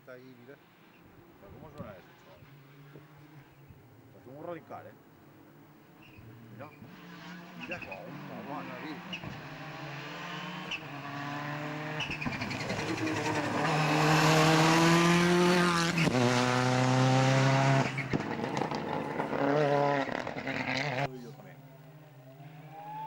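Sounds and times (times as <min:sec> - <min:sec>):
rally car engine at full throttle: 0:06.0 - 0:23.0.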